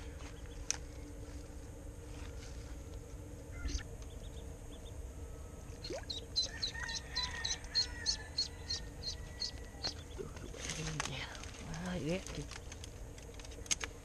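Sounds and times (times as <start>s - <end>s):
duckling peeping: 3.5s - 5.0s, 5.7s - 10.6s.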